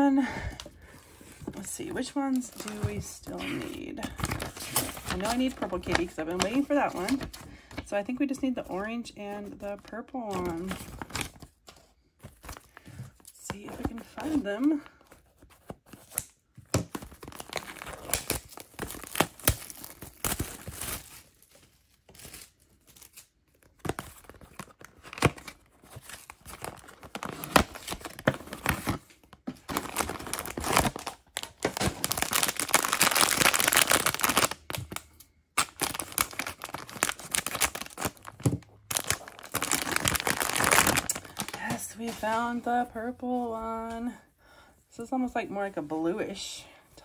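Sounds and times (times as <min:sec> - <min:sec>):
foil bag crinkling and tearing: 0:01.6 - 0:07.4, 0:16.9 - 0:41.9.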